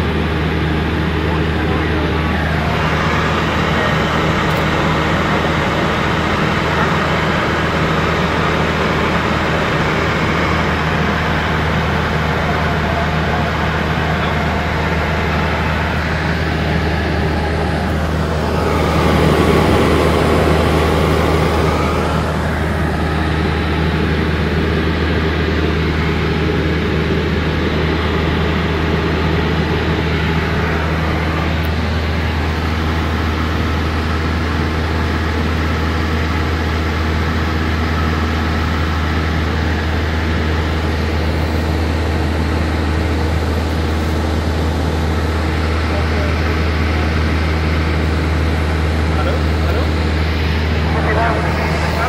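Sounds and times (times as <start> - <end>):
airplane engine and propeller drone: 0.0 - 52.0.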